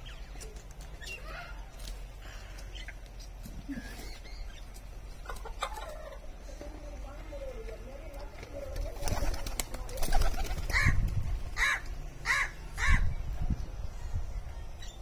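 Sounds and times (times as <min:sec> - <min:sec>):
fowl clucking: 0:05.2 - 0:06.2.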